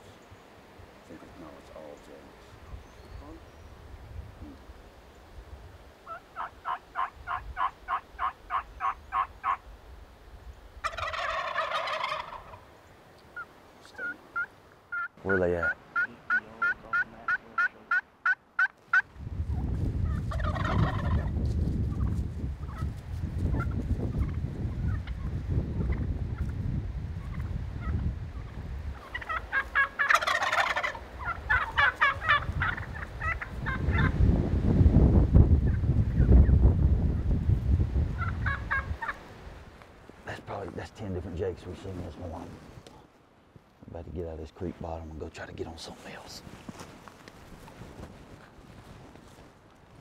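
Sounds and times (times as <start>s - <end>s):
wind rumble on microphone: 2.6s - 5.8s, 19.0s - 29.4s, 31.1s - 39.7s
turkey yelps: 6.0s - 9.6s, 10.8s - 12.7s, 13.3s - 19.0s, 20.0s - 21.3s, 23.6s - 26.5s, 28.9s - 34.1s, 38.2s - 39.2s
turkeys gobbling: 6.0s - 9.7s, 10.8s - 22.9s, 23.5s - 26.6s, 27.2s - 34.2s, 38.1s - 39.4s.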